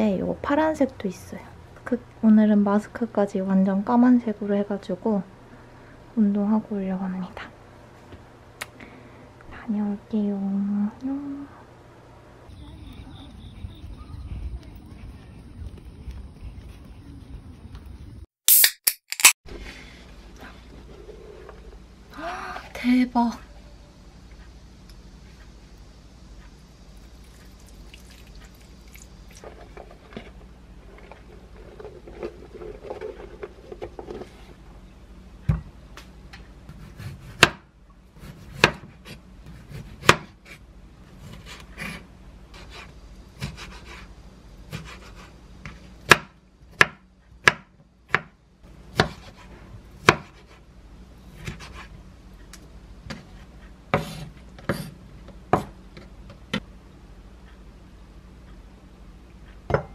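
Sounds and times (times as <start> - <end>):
knife chopping on wooden board: 36.7 - 40.6, 44.7 - 50.6, 51.3 - 51.9, 53.9 - 55.8.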